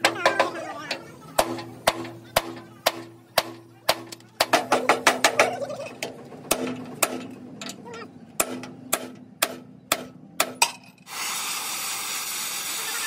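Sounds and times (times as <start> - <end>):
gas torch flame hissing: 11.1 - 13.0.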